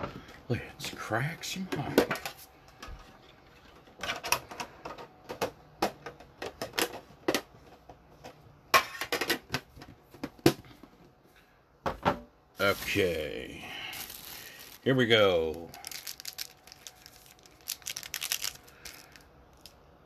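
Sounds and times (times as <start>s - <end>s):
plastic wrapper crinkling and tearing: 12.6s - 19.8s.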